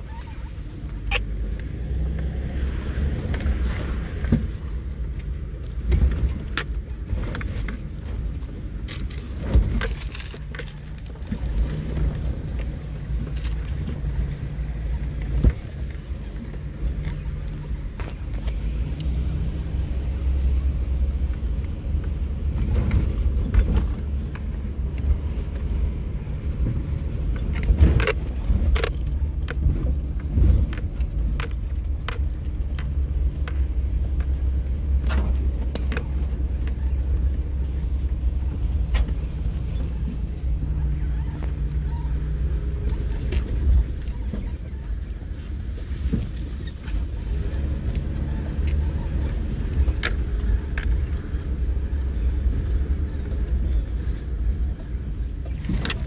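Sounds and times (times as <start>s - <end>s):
vehicle engine and tyres rumbling: 0.0s - 56.0s
clinking rattles and knocks: 5.8s - 14.2s, 26.6s - 36.8s.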